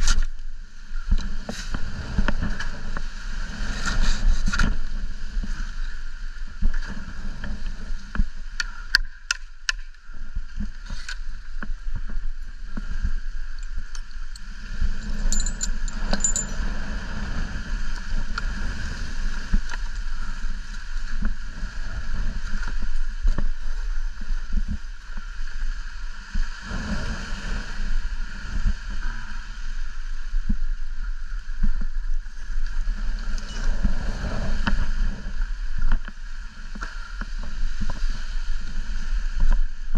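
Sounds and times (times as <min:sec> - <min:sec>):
wind buffeting microphone: 0:09.2 - 0:39.9.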